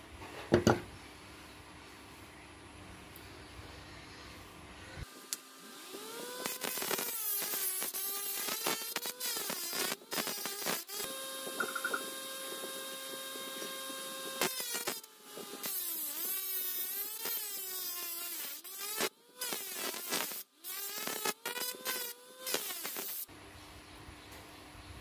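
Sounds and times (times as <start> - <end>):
small motor whining: 5.0 - 23.2.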